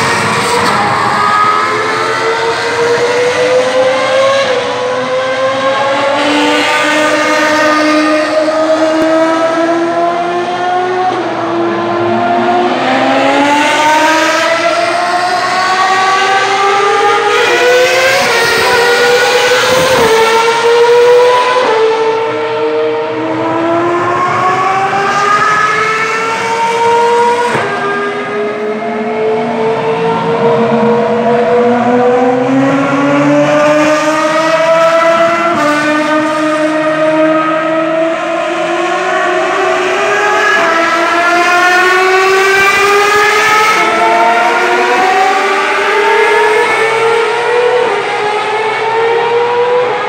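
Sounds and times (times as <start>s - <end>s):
race car engines revving: 0.0s - 50.0s.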